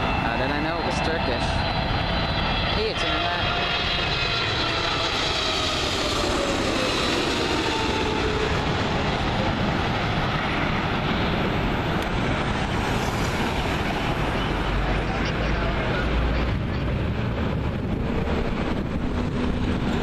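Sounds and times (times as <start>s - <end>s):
jet engines passing overhead: 0.0s - 20.0s.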